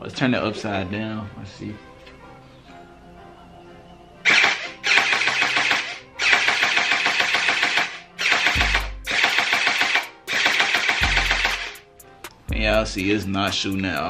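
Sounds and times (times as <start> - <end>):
toy blaster motor rattling: 4.3 - 11.8.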